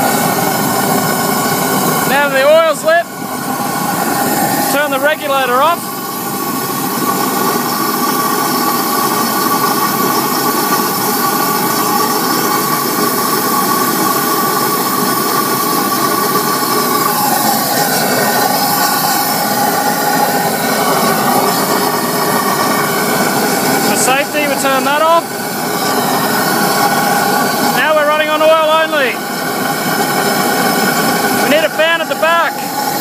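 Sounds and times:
oil burner flame roaring: 0.0s - 33.0s.

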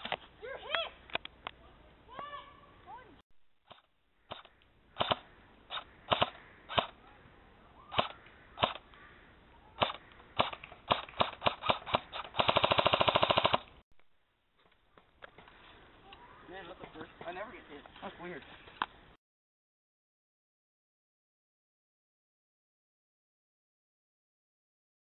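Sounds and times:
airsoft rifle firing: 3.7s - 7.0s, 7.9s - 8.8s, 9.8s - 13.7s.

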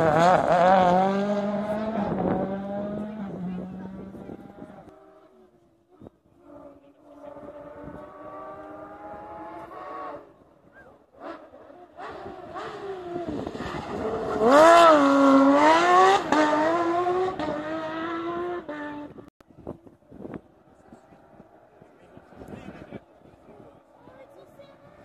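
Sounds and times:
rally car engine passing: 0.0s - 5.8s, 6.4s - 19.3s.

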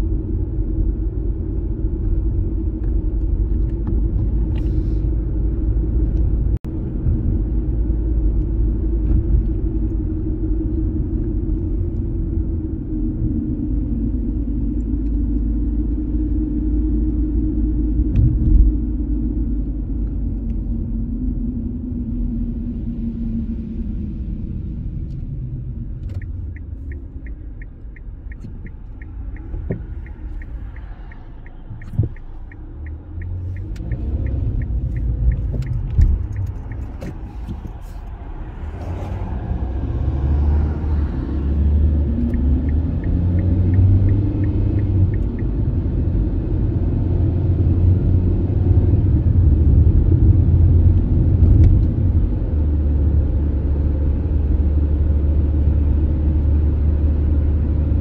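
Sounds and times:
car engine and road rumble: 0.0s - 58.0s
turn signal ticking: 25.0s - 48.0s.

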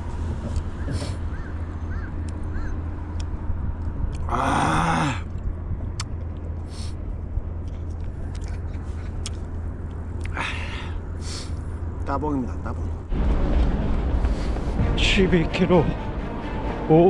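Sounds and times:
steady low rumble: 0.0s - 17.0s
man groaning: 4.3s - 5.3s.

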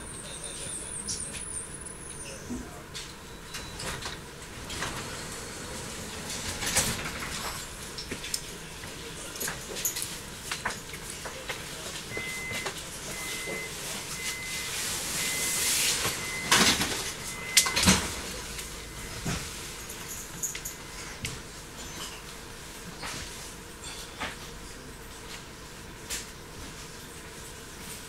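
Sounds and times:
door-closing warning beeps: 0.1s - 7.5s, 12.1s - 21.0s
sliding doors shutting with thuds: 3.7s - 8.3s.

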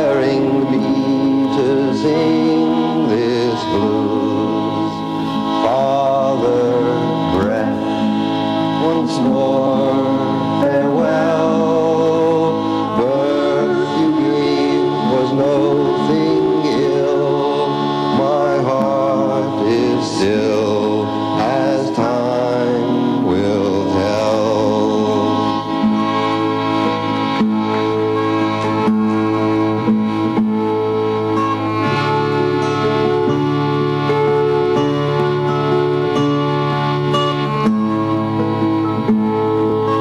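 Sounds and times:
voice chanting in long notes: 0.0s - 27.3s
reed instrument drone: 0.0s - 40.0s.

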